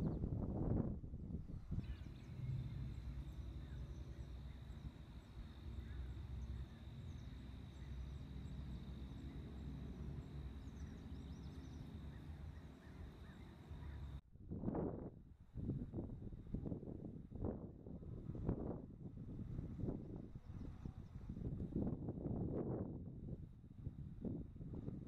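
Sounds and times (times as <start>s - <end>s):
wind rumble on microphone: 0.0s - 25.0s
faint bird chirps: 1.7s - 14.2s
thin steady high tone: 2.0s - 14.2s.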